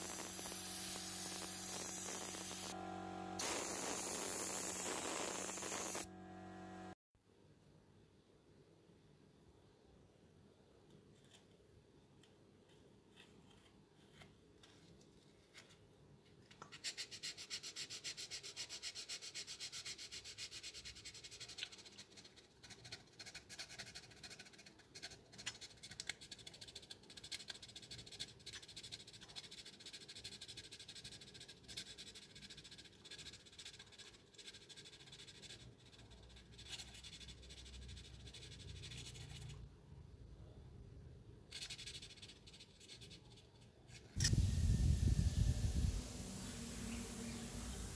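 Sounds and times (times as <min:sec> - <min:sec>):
abrasive rubbing strokes: 0:00.0 - 0:02.8, 0:44.1 - 0:47.9.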